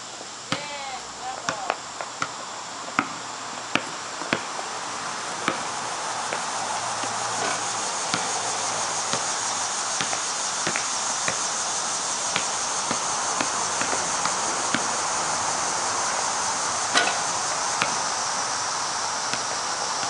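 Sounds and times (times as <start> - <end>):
insect chorus: 0.0 - 20.0
basketball bouncing on concrete: 0.5 - 0.8, 1.4 - 4.5, 5.4 - 5.7, 6.3 - 8.5, 9.1 - 9.4, 10.0 - 11.5, 12.3 - 15.0, 16.9 - 18.1.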